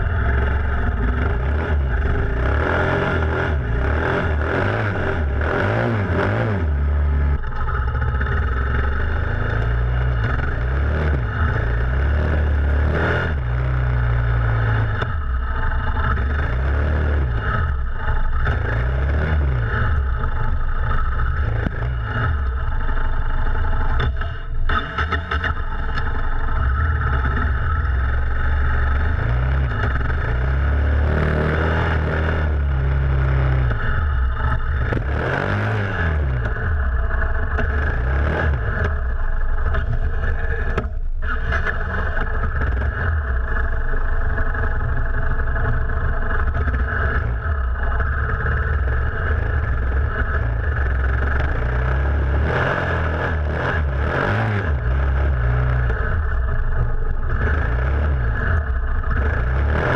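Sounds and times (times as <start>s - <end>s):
motorcycle engine revving: 0.0s - 59.9s
wind and road noise: 0.0s - 59.9s.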